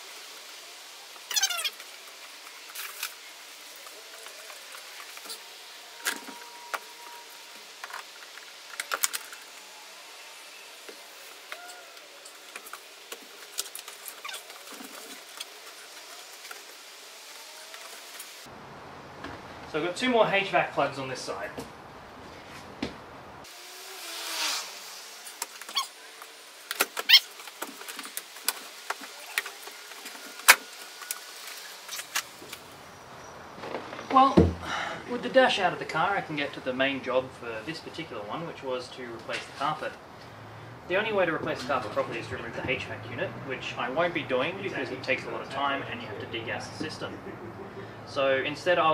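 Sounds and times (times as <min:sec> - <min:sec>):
plastic squeak: 0:01.3 - 0:01.8, 0:13.6 - 0:14.8, 0:25.6 - 0:26.0, 0:26.9 - 0:27.4.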